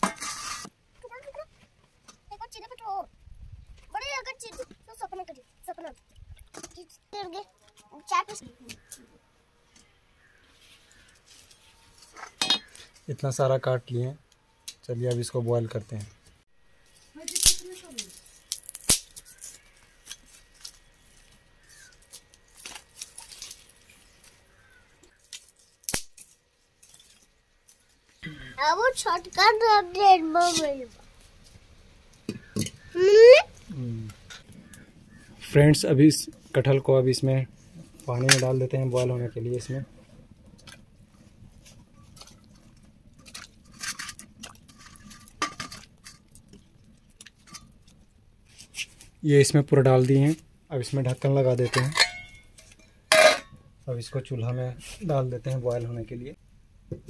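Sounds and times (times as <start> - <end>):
twigs and straw rustling and crackling: 3.6 - 13.7, 14.3 - 28.2, 28.9 - 53.0
sharp cracks: 17.3 - 20.2, 25.3 - 26.4
light clinks against metal pot: 51.7 - 53.6.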